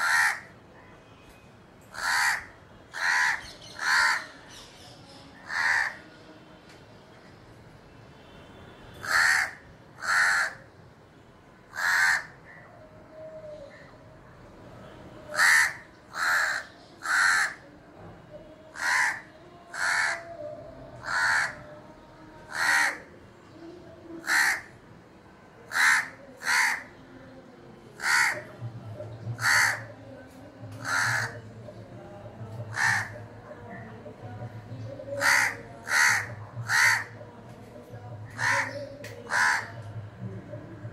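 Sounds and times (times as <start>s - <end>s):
crow cawing: 0.0s - 0.5s, 1.9s - 4.3s, 5.4s - 6.0s, 9.0s - 10.6s, 11.7s - 12.6s, 15.3s - 17.6s, 18.8s - 20.4s, 21.0s - 21.7s, 22.5s - 23.1s, 24.2s - 24.7s, 25.7s - 26.9s, 28.0s - 28.5s, 29.4s - 29.9s, 30.8s - 31.4s, 32.7s - 33.3s, 35.2s - 37.2s, 38.4s - 39.8s.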